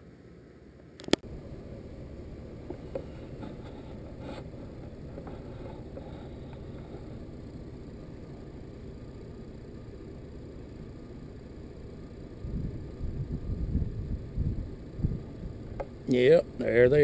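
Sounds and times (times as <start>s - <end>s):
vehicle engine rumble from cab: 0.0s - 17.0s.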